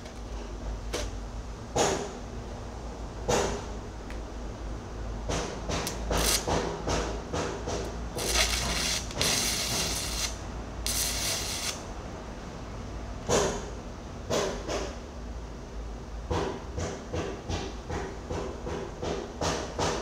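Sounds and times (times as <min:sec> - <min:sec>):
arc welding crackling and hissing: 0:05.8 - 0:06.5, 0:08.1 - 0:11.9.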